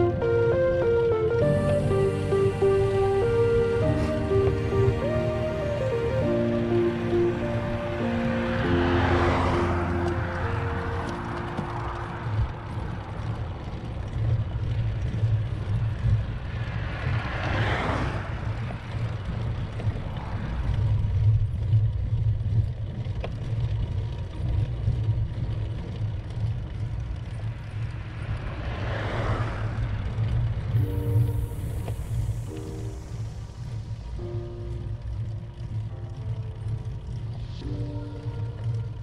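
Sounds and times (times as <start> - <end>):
car swishing past: 1.3 - 12.6, 16.5 - 18.8, 28.0 - 34.1
wind rumble on microphone: 9.0 - 39.0.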